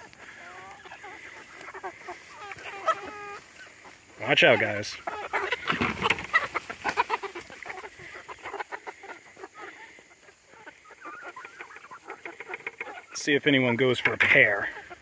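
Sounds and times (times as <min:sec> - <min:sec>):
chickens clucking: 0:00.0 - 0:15.0
bucket thump: 0:05.7 - 0:06.3.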